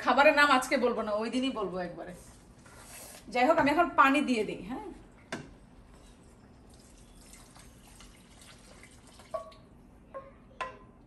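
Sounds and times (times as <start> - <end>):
water pouring into a pot: 6.6 - 9.6.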